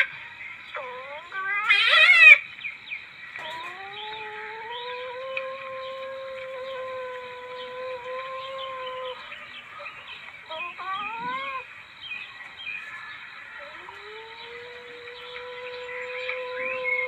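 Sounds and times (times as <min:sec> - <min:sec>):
animal whining call: 0:10.5 - 0:11.7.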